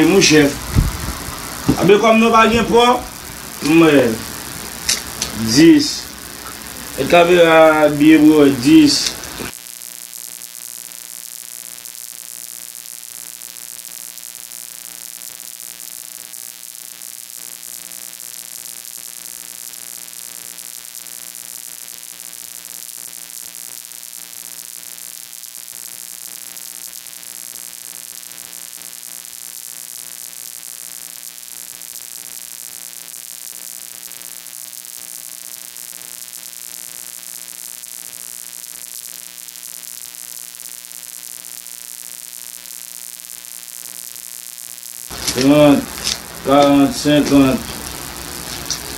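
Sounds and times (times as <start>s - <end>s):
electrical hum: 0.0s - 9.5s, 45.1s - 48.9s
constant hiss: 0.0s - 9.6s, 45.1s - 48.9s.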